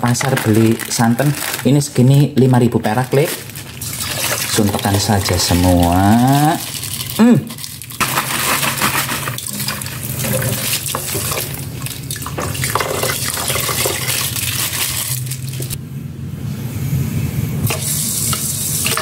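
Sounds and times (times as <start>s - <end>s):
plastic bag crinkling: 0.0s - 15.8s
coconut milk pouring and splashing: 2.9s - 15.8s.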